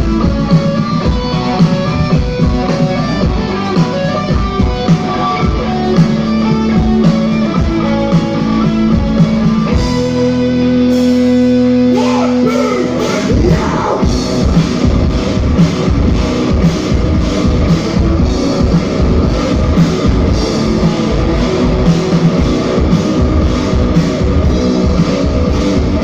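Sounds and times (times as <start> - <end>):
bass guitar: 0.0 - 26.0
drums: 0.0 - 26.0
electric guitars: 0.0 - 26.0.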